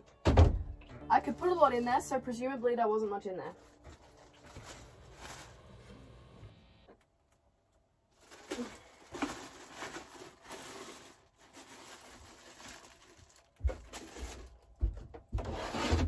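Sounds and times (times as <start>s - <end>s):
plastic bag crinkling: 3.4s - 6.2s, 8.1s - 14.8s.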